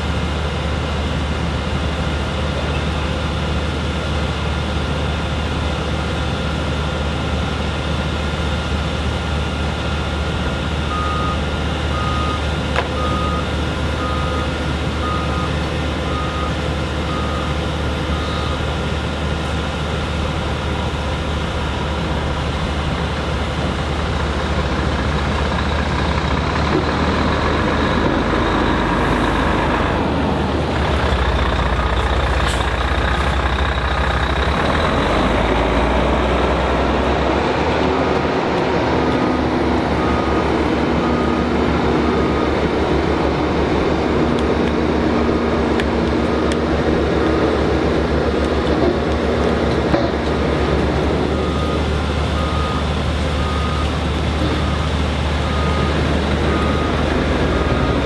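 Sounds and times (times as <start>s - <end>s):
heavy vehicle engine running: 0.0s - 58.0s
reversing alarm beeping: 10.8s - 18.7s, 40.0s - 42.7s, 51.2s - 58.0s.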